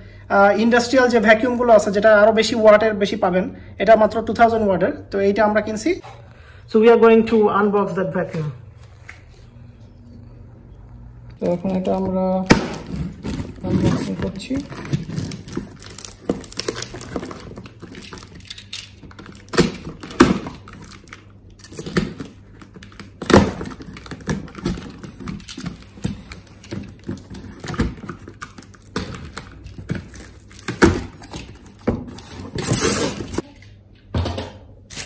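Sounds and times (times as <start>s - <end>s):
cardboard rustling: 11.5s - 18.3s.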